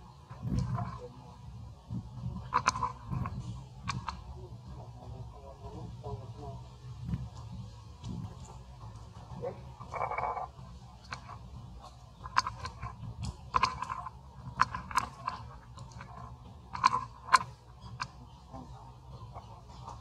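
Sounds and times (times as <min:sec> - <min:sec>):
monkey chewing fruit crunches: 0:12.2 - 0:18.2.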